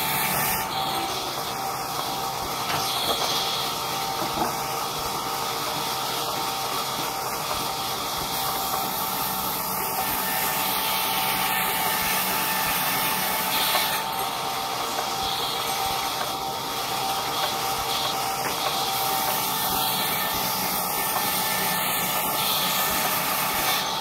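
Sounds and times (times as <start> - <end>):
band saw cutting wood: 0.0 - 24.0.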